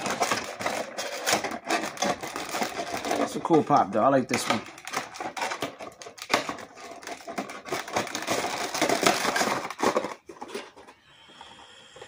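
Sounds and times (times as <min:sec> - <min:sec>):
plastic and cardboard crinkling: 0:00.0 - 0:11.1.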